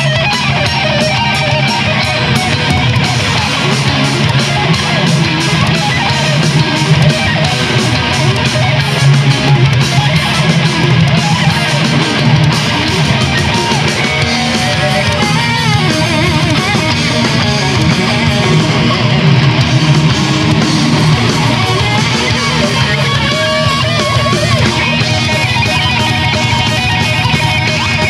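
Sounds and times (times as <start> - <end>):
electric guitars playing metal leads: 0.0 - 28.0
low backing: 0.0 - 28.0.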